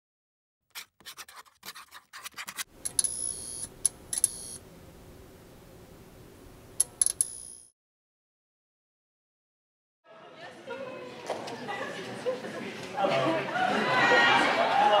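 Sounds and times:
steady electrical hum: 0:02.7 - 0:07.6
sharp clicks: 0:06.8 - 0:07.5.

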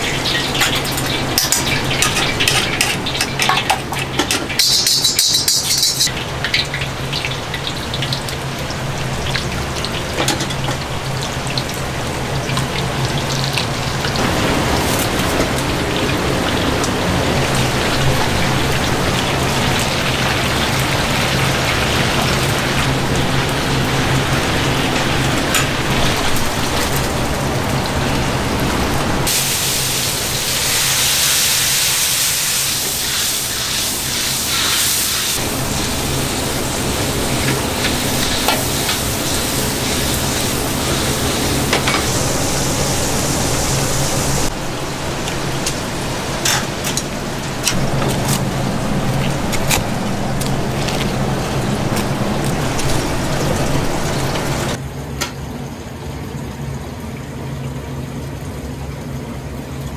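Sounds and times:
hot oil sizzling: 0:00.0 - 0:54.8
low hum: 0:35.4 - 0:54.8.

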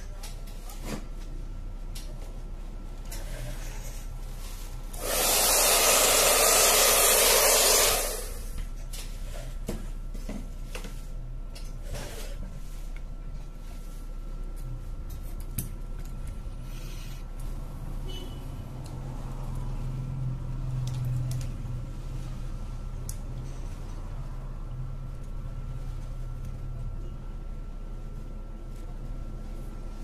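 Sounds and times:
compressed air hissing: 0:05.0 - 0:08.6.

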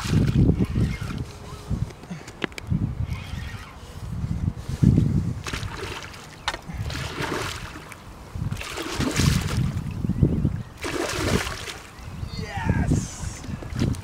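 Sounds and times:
fish thrashing and splashing: 0:08.5 - 0:09.7, 0:10.8 - 0:11.9.

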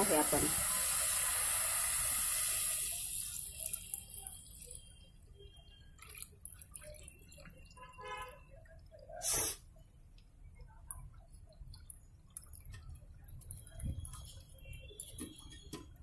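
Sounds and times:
liquid sizzling in hot pot: 0:00.0 - 0:04.9, 0:09.1 - 0:09.8
liquid trickling and dripping: 0:00.0 - 0:16.0.

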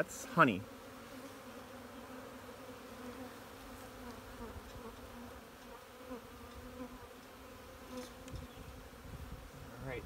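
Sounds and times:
honeybees buzzing: 0:00.0 - 0:10.0.

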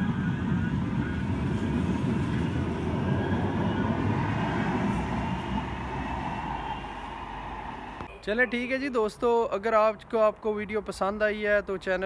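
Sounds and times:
tram rumbling: 0:00.0 - 0:08.7.

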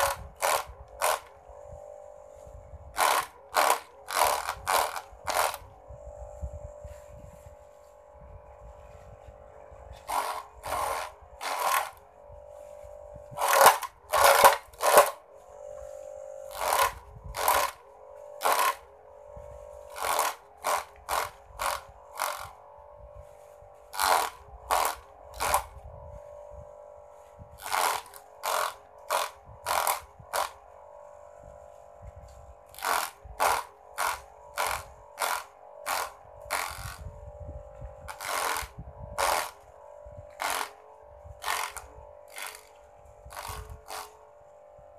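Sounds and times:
blades chopping grass clatter: 0:00.0 - 0:08.1, 0:08.8 - 0:44.7
electric motor whine: 0:00.0 - 0:44.9.

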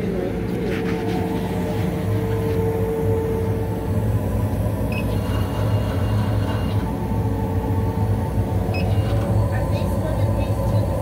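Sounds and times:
laser cutter humming: 0:00.0 - 0:11.0
faint high whine: 0:00.6 - 0:11.0.

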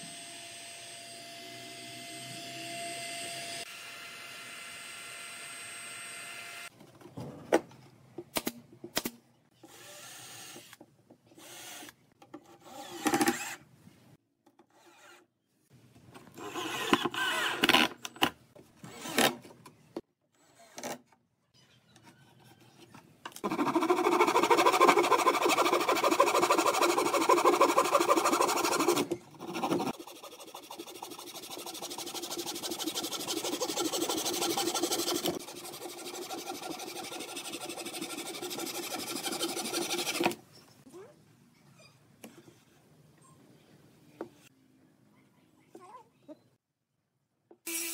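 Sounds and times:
handsaw cutting wood: 0:23.4 - 0:40.4.

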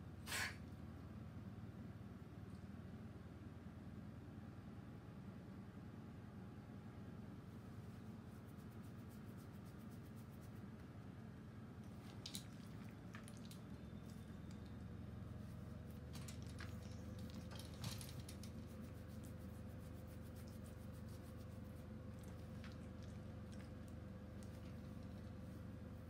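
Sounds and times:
low room hum: 0:00.0 - 0:26.0.

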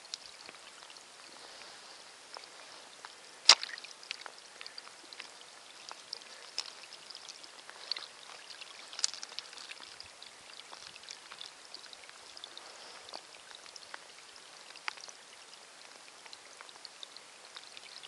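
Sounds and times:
small splashes and drips: 0:00.0 - 0:18.0
water trickling over gravel: 0:00.0 - 0:18.0.

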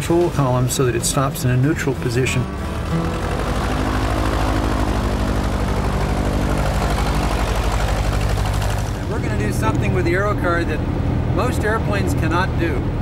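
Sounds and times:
piston engine running: 0:00.0 - 0:11.4.

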